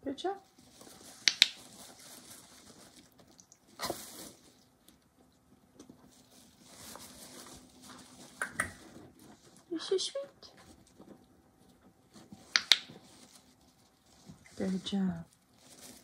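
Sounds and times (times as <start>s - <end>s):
rat scuffling on fabric: 5.8s - 9.7s
light taps: 12.5s - 12.9s.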